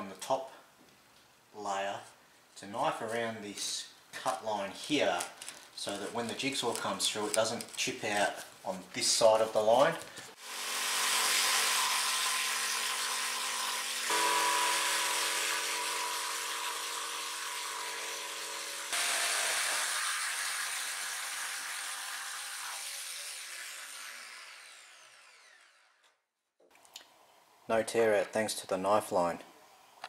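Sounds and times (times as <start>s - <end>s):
electric jigsaw cutting wood: 10.4s - 26.2s.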